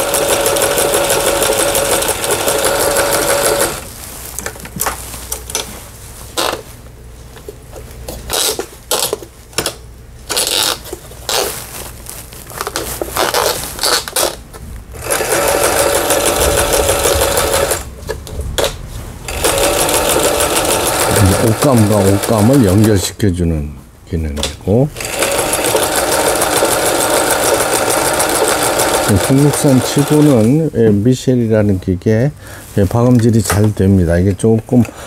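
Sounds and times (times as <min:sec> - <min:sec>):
sewing machine stitching: 0:00.0 - 0:03.9, 0:15.0 - 0:17.9, 0:19.3 - 0:22.9, 0:25.0 - 0:30.5.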